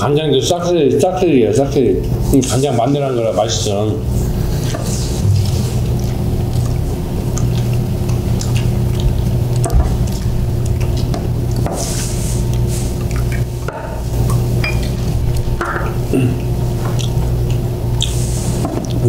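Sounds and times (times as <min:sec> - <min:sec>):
low background hum: 0:00.0 - 0:19.0
wet chewing mouth sounds: 0:04.4 - 0:13.5, 0:14.2 - 0:19.0.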